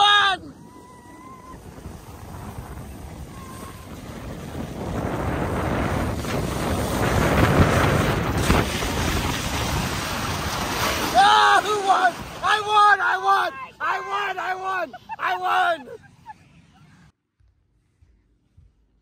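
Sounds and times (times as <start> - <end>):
wind on microphone: 0.0 - 12.5
snow tube sliding on snow: 0.0 - 17.1.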